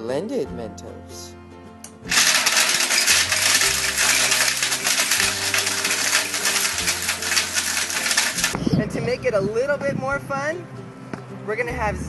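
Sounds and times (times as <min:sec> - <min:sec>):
quiet background music: 0:00.0 - 0:12.0
blender grinding candy: 0:02.1 - 0:08.6.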